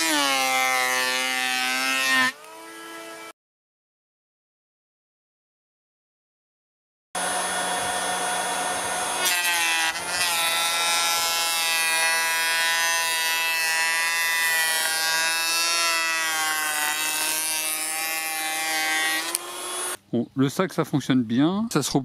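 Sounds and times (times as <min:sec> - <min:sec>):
electric planer planing wood: 0:00.0 - 0:03.3, 0:07.2 - 0:20.0.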